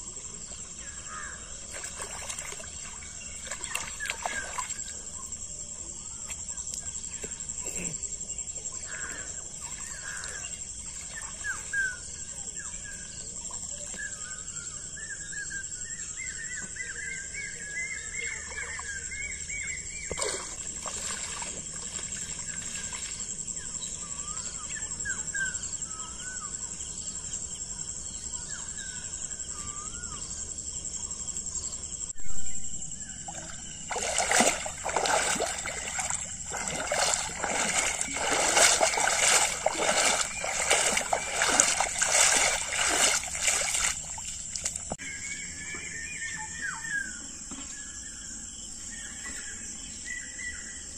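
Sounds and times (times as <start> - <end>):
birds calling: 0.6 - 5.4, 33.0 - 47.3
water sloshing and splashing: 1.4 - 5.4, 9.2 - 12.1, 20.1 - 23.6, 33.2 - 45.0.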